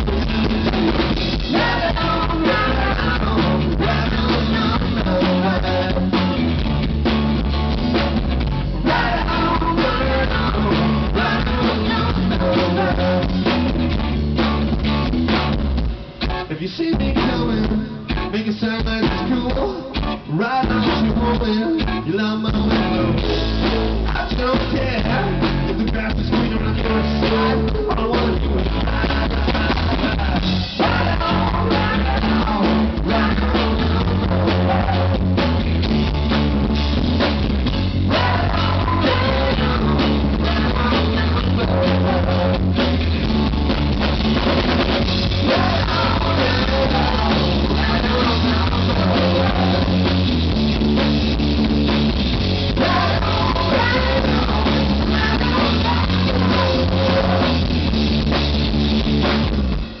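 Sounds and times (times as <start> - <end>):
bass guitar: 0.0 - 60.0
drum kit beat: 0.0 - 60.0
electric guitars: 0.0 - 60.0
woman singing: 1.5 - 6.1, 8.8 - 13.2, 26.4 - 35.2, 38.1 - 42.7, 45.4 - 50.0, 52.8 - 57.6.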